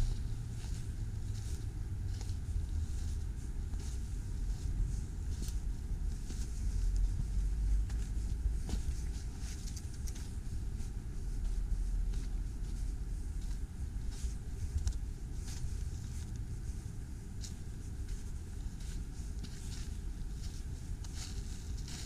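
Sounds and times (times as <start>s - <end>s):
footsteps crunching on snow and twigs: 17.3s - 22.0s.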